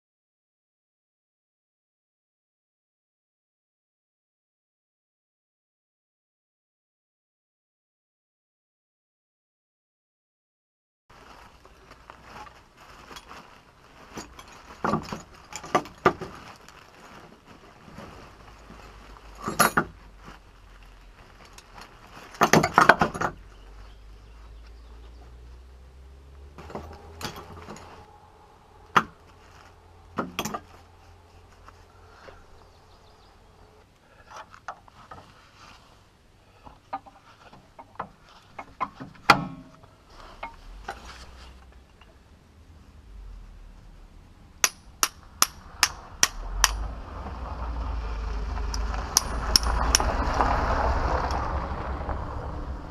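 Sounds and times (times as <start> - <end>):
rustling: 11.1 - 52.9
metal hand tools clinking: 26.6 - 28.1, 48.7 - 50.1.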